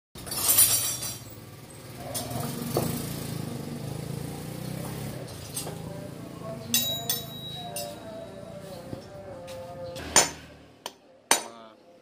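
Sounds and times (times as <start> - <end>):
sharp knock: 10.0 - 10.5.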